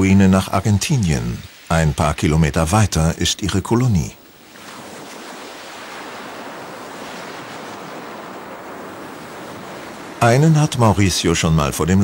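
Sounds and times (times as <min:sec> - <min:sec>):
waves washing onto pebble beach: 0:04.3 - 0:11.3.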